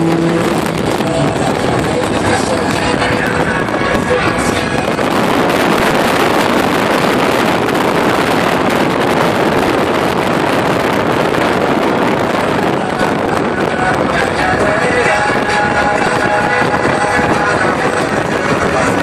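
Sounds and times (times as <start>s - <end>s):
wind and road noise inside car: 0.0s - 19.0s.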